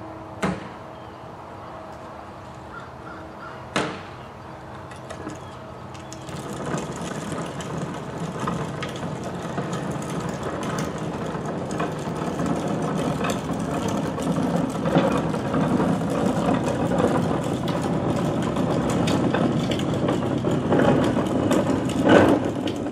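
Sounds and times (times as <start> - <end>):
heavy vehicle engine running: 0.0 - 22.9
knocks and rattles: 4.9 - 22.9.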